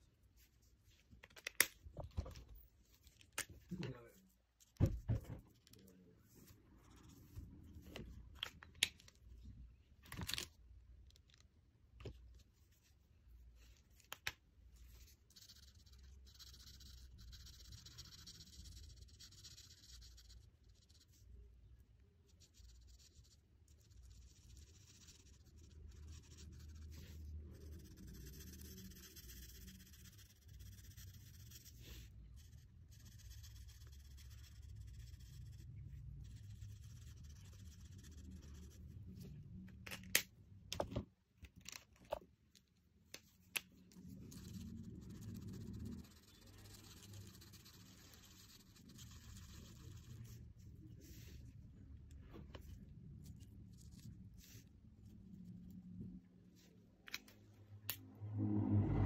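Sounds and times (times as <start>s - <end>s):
marker scratching on paper: 14.9s - 21.2s, 22.2s - 38.9s, 44.1s - 50.4s.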